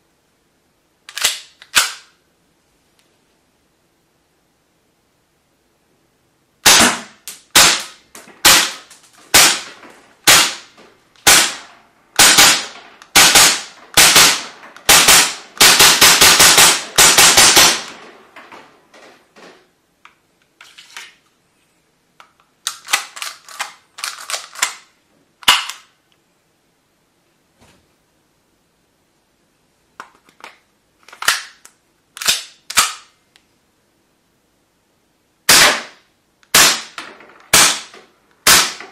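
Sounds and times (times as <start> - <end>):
airsoft pistol shots: 6.6 - 18.1, 35.5 - 38.9.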